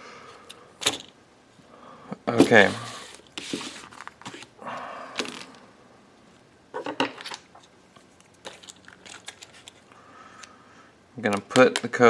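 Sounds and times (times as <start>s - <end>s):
plastic packaging crinkling: 8.4s - 9.8s.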